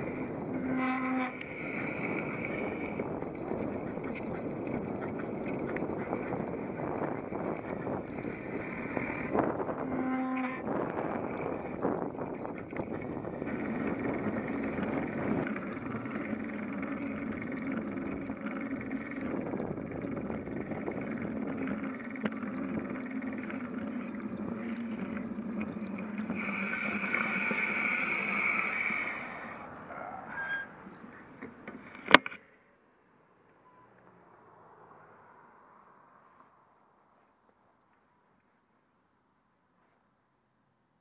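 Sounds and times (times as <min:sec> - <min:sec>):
bicycle rolling on concrete: 0:00.0 - 0:32.4
high steady tone: 0:07.1 - 0:30.8.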